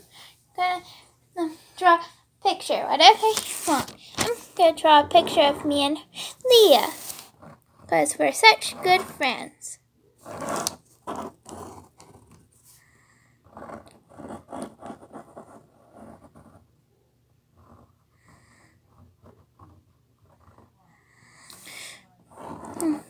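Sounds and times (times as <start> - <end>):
pencil scratching on paper: 3.2 - 9.6, 10.2 - 16.7, 17.5 - 21.6, 22.2 - 23.0.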